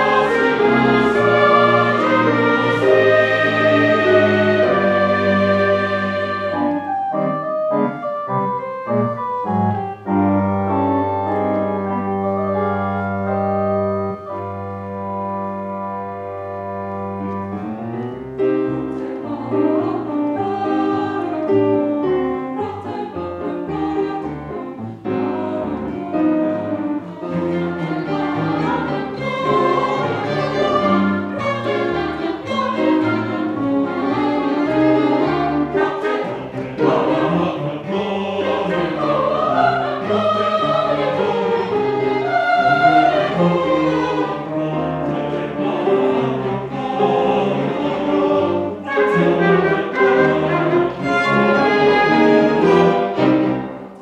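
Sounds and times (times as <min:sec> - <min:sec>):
mixed choir singing: 0:00.0 - 0:07.0, 0:18.7 - 0:54.0
piano: 0:00.0 - 0:54.0.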